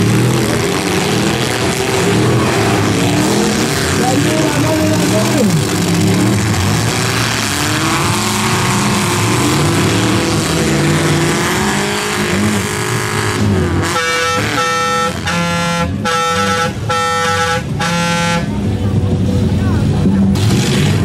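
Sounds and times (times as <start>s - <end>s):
car engines revving: 0.0s - 21.0s
vehicle horn blasts: 13.8s - 18.6s.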